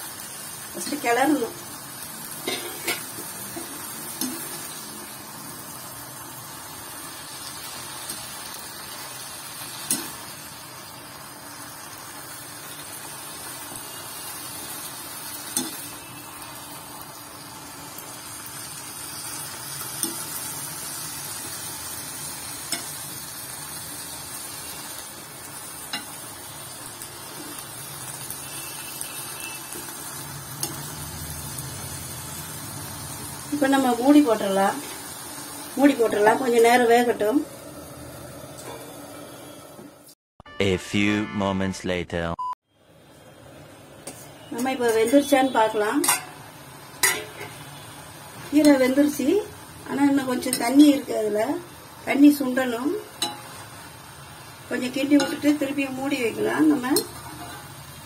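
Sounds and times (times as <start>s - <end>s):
spatula clinking against pan: 46.0s - 46.3s, 47.0s - 47.5s, 53.2s - 53.5s.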